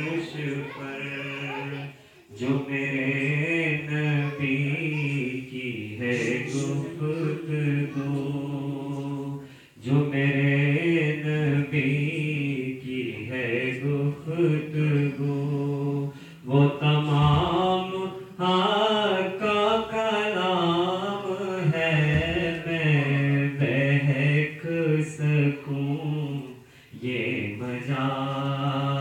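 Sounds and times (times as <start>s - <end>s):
man chanting into a microphone: 0.0s - 29.0s.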